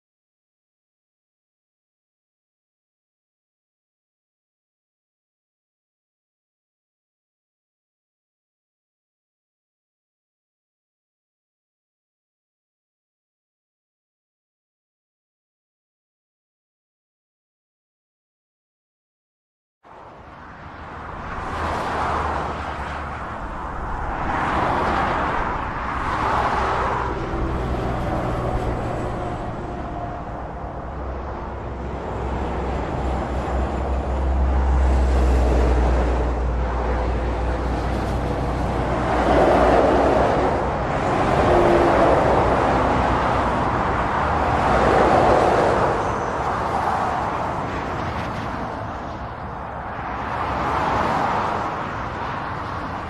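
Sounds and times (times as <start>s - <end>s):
cars and lorries passing: 19.8s - 53.0s
low traffic rumble: 19.9s - 53.0s.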